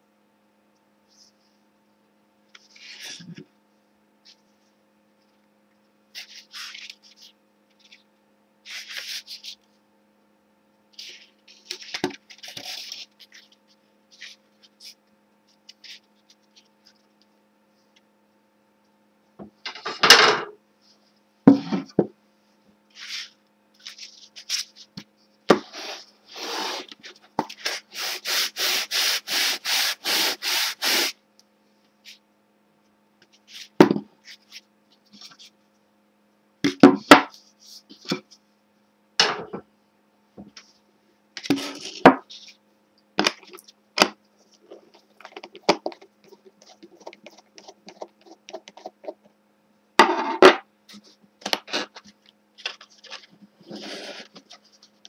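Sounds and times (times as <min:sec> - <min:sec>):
sanding block scraping wood: 0:27.6 - 0:31.2.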